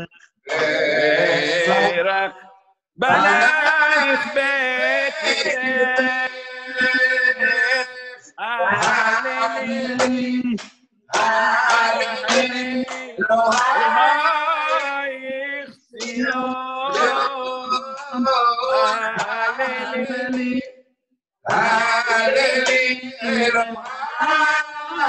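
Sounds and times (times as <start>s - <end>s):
man singing unaccompanied: 0.0s - 2.4s, 3.0s - 20.7s, 21.5s - 25.0s.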